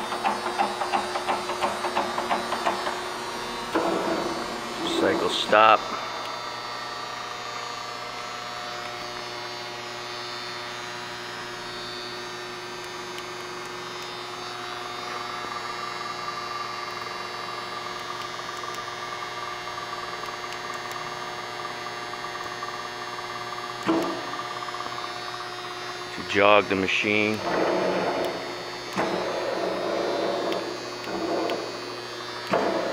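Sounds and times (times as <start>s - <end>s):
grinder motors humming: 0.0s - 32.9s.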